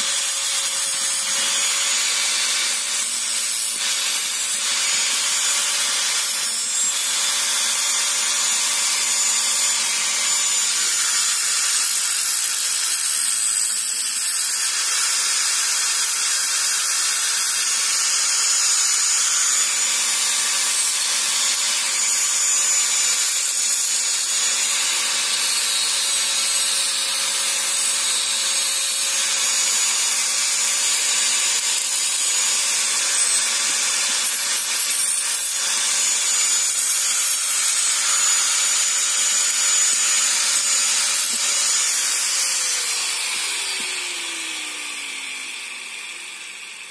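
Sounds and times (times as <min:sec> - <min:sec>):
angle grinder grinding metal: 0:00.0 - 0:46.9.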